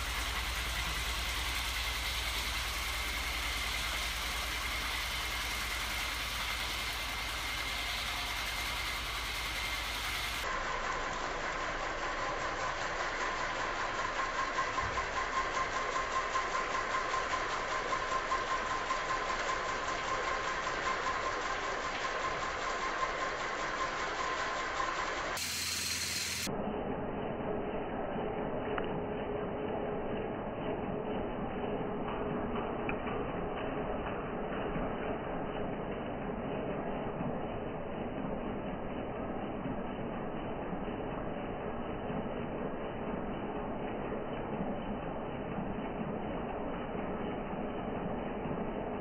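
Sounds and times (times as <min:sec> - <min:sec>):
electric motor whine: 0:00.0 - 0:11.6, 0:21.3 - 0:26.5
fast mechanical clatter: 0:00.0 - 0:49.0.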